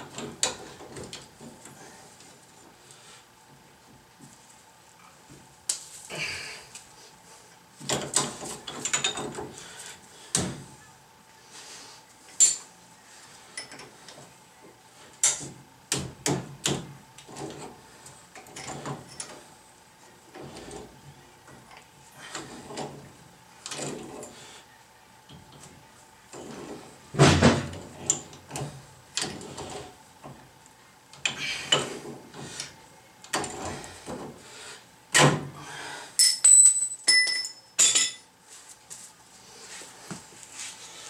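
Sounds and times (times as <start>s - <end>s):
metal tools clanking: 36.2s - 38.3s.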